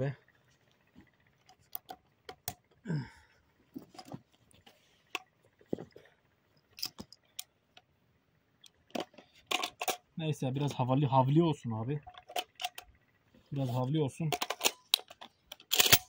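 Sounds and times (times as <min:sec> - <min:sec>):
shotgun clicks and rattles: 0:01.2 - 0:02.8, 0:06.6 - 0:07.9, 0:08.6 - 0:10.1, 0:12.0 - 0:16.0.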